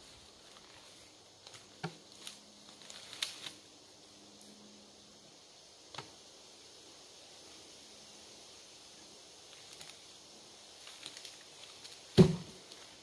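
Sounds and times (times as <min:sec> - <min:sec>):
wooden knocks and snaps: 0:12.2 - 0:12.6.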